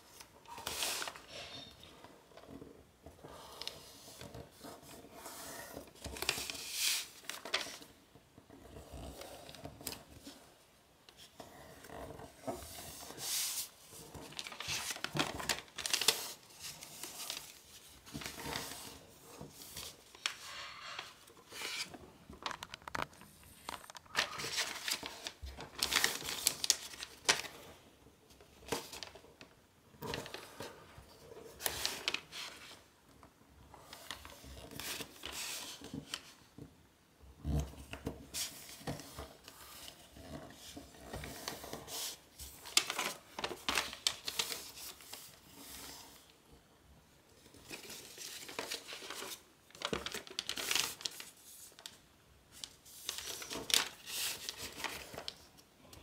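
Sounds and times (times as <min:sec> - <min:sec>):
paper crinkling as folded: 0:00.1 - 0:02.0, 0:05.8 - 0:08.0, 0:11.9 - 0:27.8, 0:28.5 - 0:29.4, 0:30.0 - 0:32.9, 0:33.8 - 0:36.4, 0:37.5 - 0:46.3, 0:47.4 - 0:56.0.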